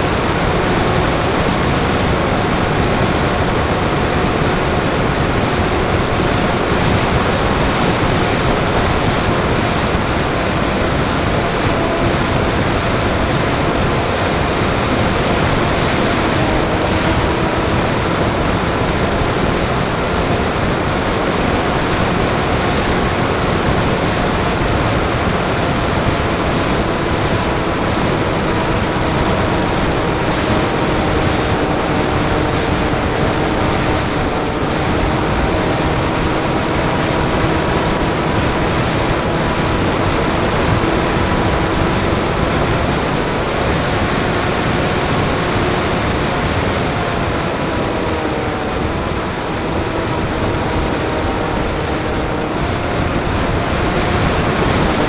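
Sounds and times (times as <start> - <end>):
electric motor and propeller whine: 0.0 - 55.0
wind rush: 0.0 - 55.0.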